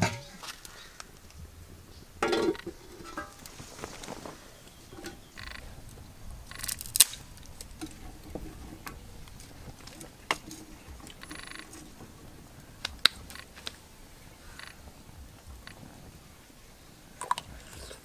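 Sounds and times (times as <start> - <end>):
fire popping: 0.0 - 18.0
wood fire crackling: 0.0 - 18.0
metal ladle scraping cooking pot: 2.2 - 3.6, 4.9 - 5.4.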